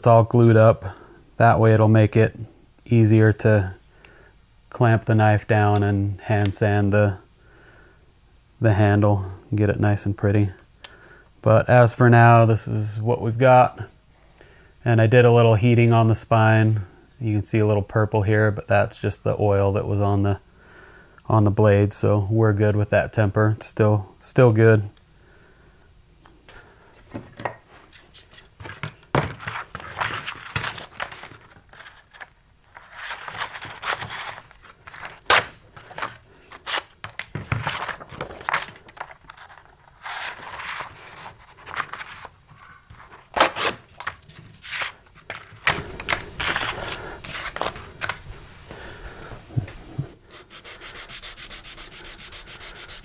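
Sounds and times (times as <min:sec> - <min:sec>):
sandpaper rustling and scraping: 0:50.3 - 0:53.0.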